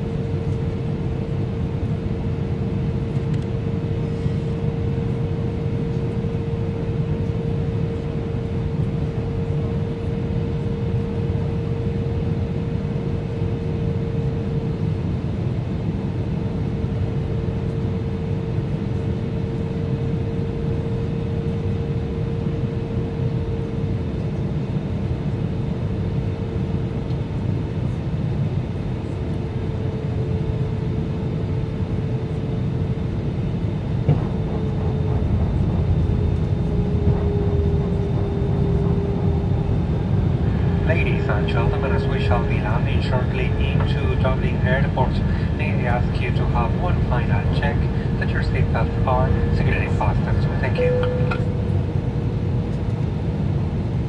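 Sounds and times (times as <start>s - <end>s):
jet engines droning: 0.0s - 54.0s
steady hum: 27.8s - 54.0s.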